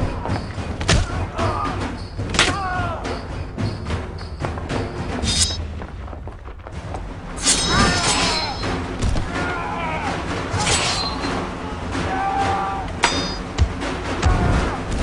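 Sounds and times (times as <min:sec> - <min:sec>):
dramatic film music: 0:00.0 - 0:15.0
voices crying out: 0:00.1 - 0:03.4, 0:07.7 - 0:13.4.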